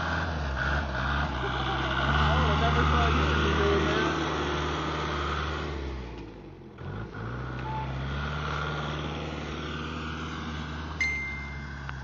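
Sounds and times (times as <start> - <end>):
snow machine engine running: 1.1 - 5.8
short high beep: 11.0 - 11.8.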